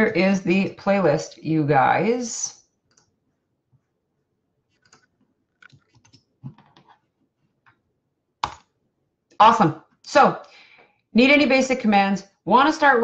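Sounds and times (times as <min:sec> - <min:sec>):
computer keyboard typing: 0:04.7 - 0:07.0, 0:08.4 - 0:08.7.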